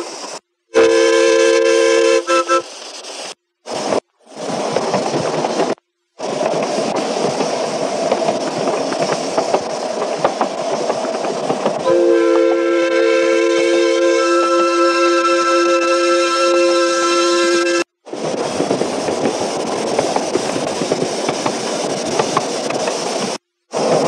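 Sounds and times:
steam locomotive whistle chord: 0:00.7 - 0:02.7, 0:11.8 - 0:17.9
train wheels rattling on track: 0:02.5 - 0:12.6, 0:18.1 - 0:24.0.

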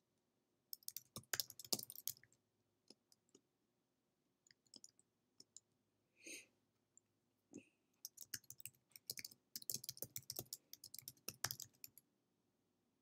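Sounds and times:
faint keyboard typing: 0:00.7 - 0:03.4, 0:04.5 - 0:05.7, 0:08.0 - 0:12.0.

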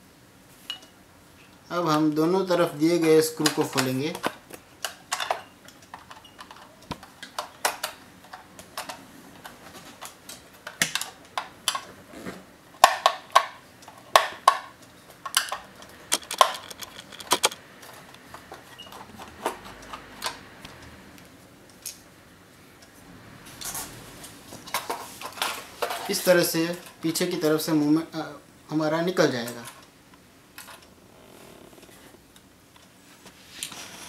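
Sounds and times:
screwdriver clicking on screws: 0:15.4 - 0:17.6.

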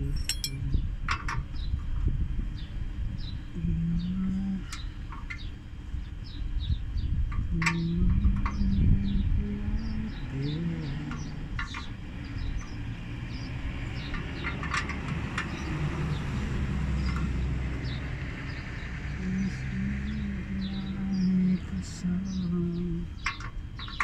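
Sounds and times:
low steady rumble: 0:00.0 - 0:24.0
small birds chirping: 0:00.0 - 0:24.0.

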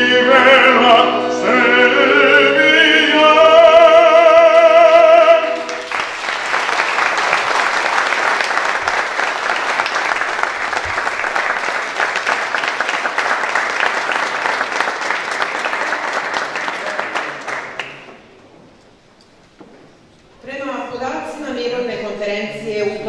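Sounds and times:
audience applauding: 0:05.4 - 0:18.4.

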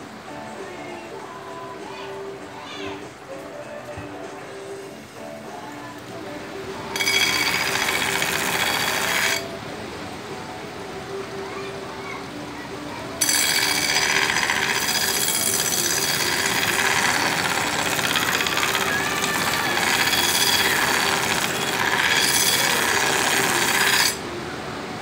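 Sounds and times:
machine humming: 0:06.5 - 0:10.0, 0:13.2 - 0:25.0
knife grinding on belt grinder: 0:06.9 - 0:09.5, 0:13.2 - 0:24.2.

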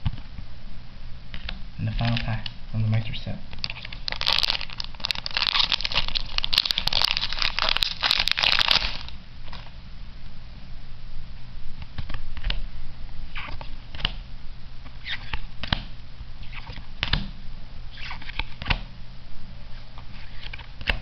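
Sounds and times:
cards being flipped through: 0:03.6 - 0:09.7.

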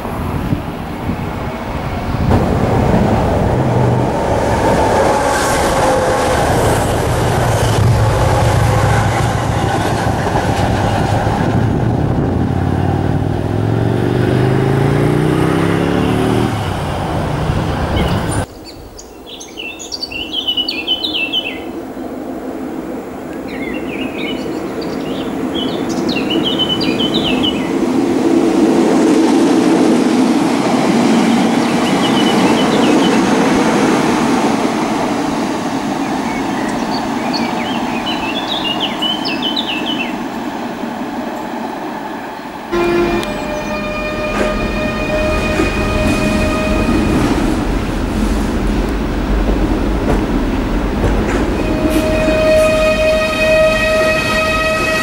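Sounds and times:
train wheels on rails: 0:00.0 - 0:18.5, 0:23.3 - 0:55.0
birds chirping: 0:17.8 - 0:22.2, 0:23.3 - 0:27.8, 0:31.6 - 0:33.5, 0:36.0 - 0:41.6, 0:42.2 - 0:47.3.

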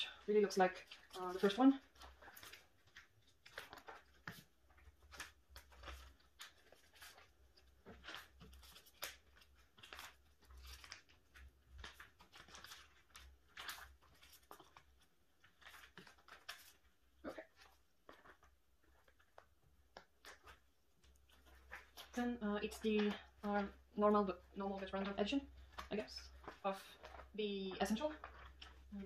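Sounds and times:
plastic sleeves rustling: 0:00.0 - 0:29.0.

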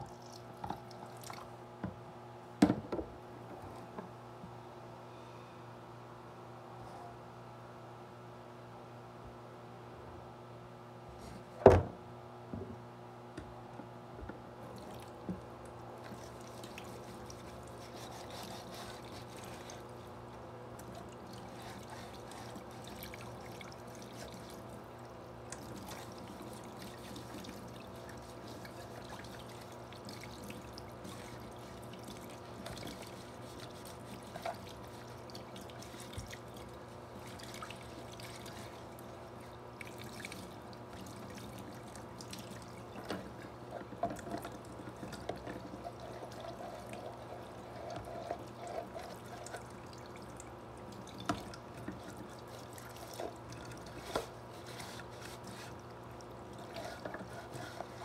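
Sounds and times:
knocks in sink: 0:02.6 - 0:03.1, 0:11.6 - 0:11.9.

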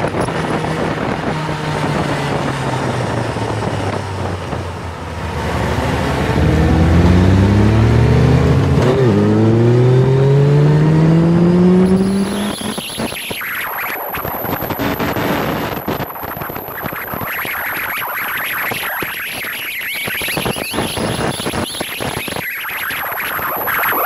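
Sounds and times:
motorcycle engine accelerating: 0:00.0 - 0:13.4, 0:14.4 - 0:18.0.

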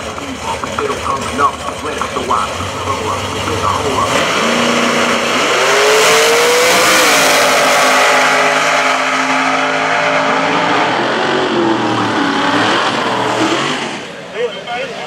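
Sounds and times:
drag cars accelerating at full throttle: 0:00.0 - 0:15.0.

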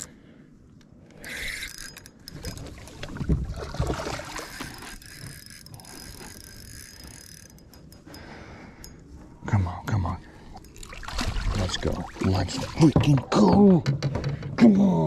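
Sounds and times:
water splashing: 0:02.6 - 0:05.0, 0:10.7 - 0:13.3.

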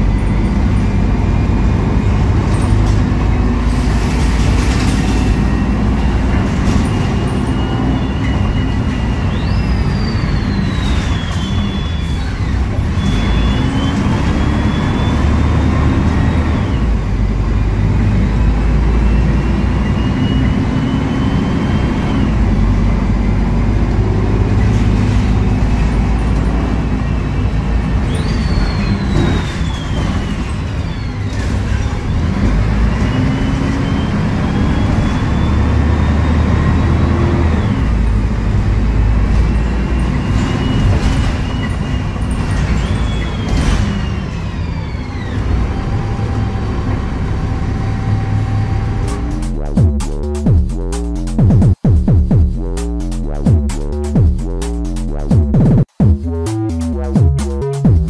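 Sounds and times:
diesel bus engine rumble: 0:00.0 - 0:58.0
drivetrain whine: 0:41.6 - 0:58.0.

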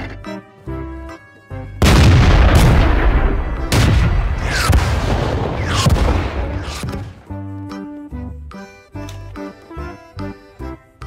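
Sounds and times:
tank cannon blasts: 0:01.8 - 0:07.3.

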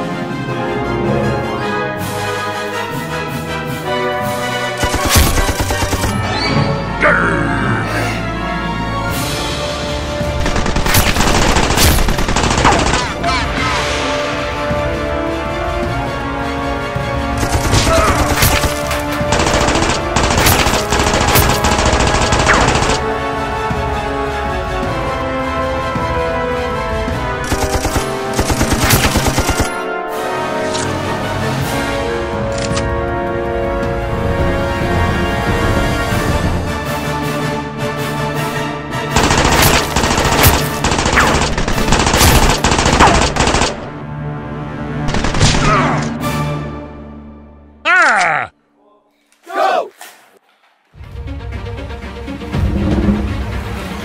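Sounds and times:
background music: 0:00.0 - 0:48.8, 0:51.0 - 0:54.0
rapid automatic gunfire: 0:04.8 - 0:06.2, 0:10.4 - 0:13.2, 0:17.4 - 0:23.1, 0:27.4 - 0:29.8, 0:39.2 - 0:44.0, 0:45.1 - 0:45.6.

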